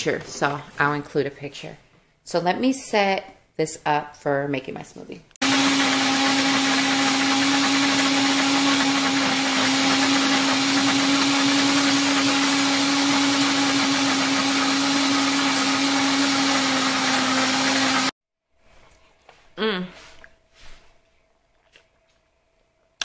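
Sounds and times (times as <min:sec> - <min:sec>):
blender motor whirring: 0:05.4 - 0:18.2.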